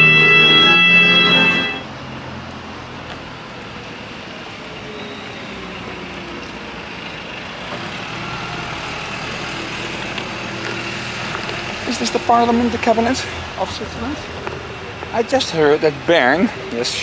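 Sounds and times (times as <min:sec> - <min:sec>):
bus driving past: 0:00.0 - 0:17.0.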